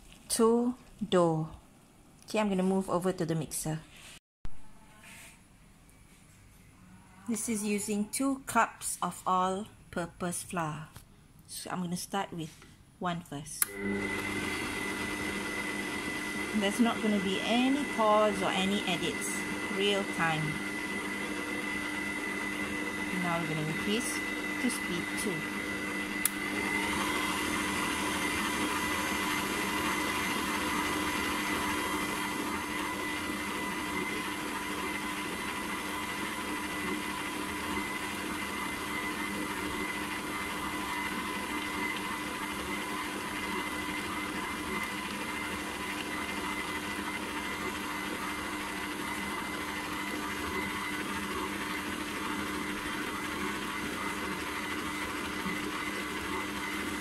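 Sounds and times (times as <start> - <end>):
mixer click: 13.6 - 14.4, 25.7 - 27.4
stand mixer motor whining hum: 13.6 - 57.0.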